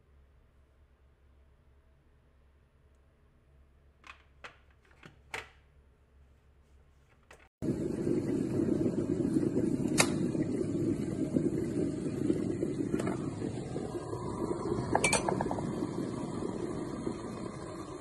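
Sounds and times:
kettle water boiling: 0:07.6 - 0:18.0.

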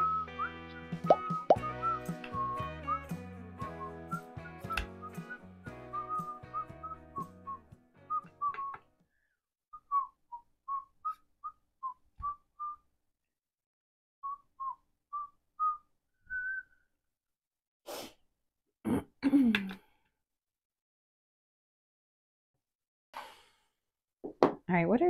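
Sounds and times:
background music: 0:00.0 - 0:09.0
person whistling a tune: 0:00.0 - 0:12.8, 0:14.2 - 0:16.9.

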